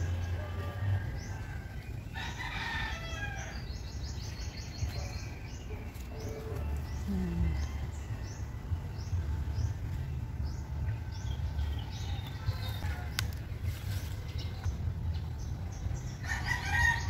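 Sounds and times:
rooster crowing: 0.0 - 3.7, 16.2 - 17.0
small birds chirping: 0.0 - 17.0.

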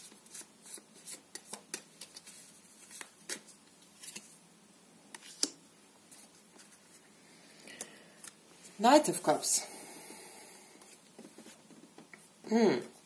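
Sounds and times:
cards being shuffled: 0.0 - 4.4, 5.1 - 7.0.

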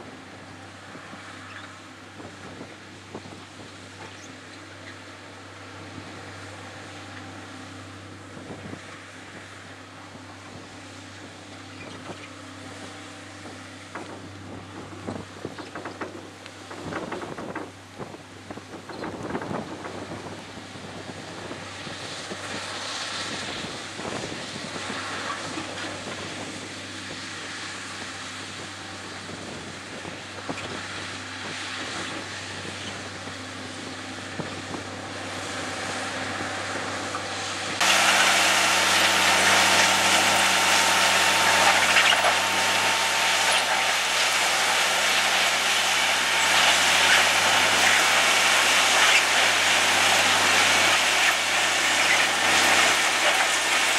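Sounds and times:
power units humming: 0.0 - 53.9
digging wheels churning ballast: 37.0 - 53.9.

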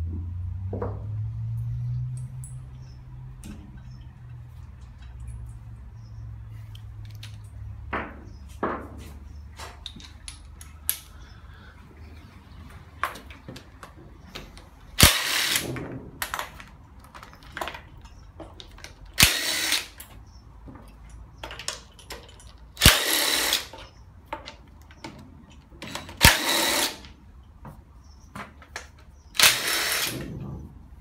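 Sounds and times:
drill click: 15.0 - 15.7, 19.2 - 20.0, 22.8 - 23.8, 25.9 - 27.1, 29.4 - 30.3
cordless drill spinning out bolts: 15.0 - 15.8, 19.2 - 20.0, 22.8 - 23.8, 26.1 - 27.1, 29.4 - 30.3
metal clinks of tools: 21.0 - 22.8.

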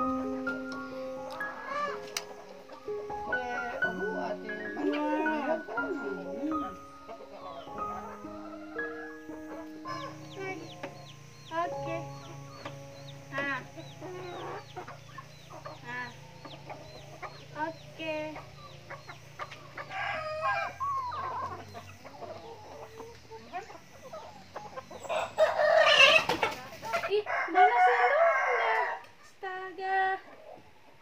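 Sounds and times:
chickens clucking: 0.0 - 31.0
rooster crowing: 1.5 - 2.3, 7.4 - 10.3, 19.6 - 22.9, 25.0 - 26.3, 27.2 - 29.1.

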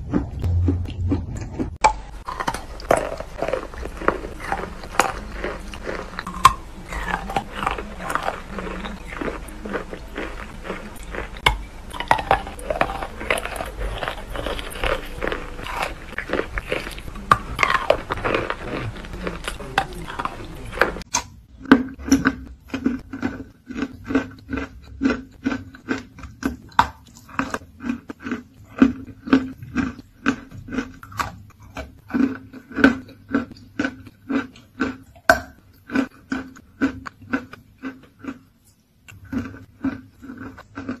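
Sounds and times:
chalk being crunched and chewed: 0.1 - 21.2.

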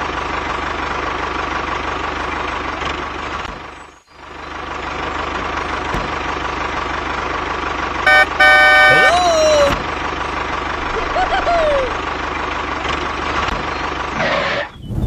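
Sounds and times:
tractor engine running: 0.0 - 14.7.

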